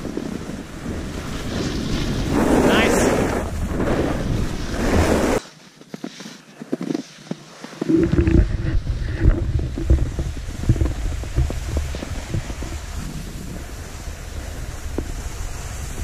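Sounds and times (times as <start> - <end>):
wind buffeting microphone: 0.0 - 5.4, 7.9 - 16.0
low rumbling: 7.9 - 16.0.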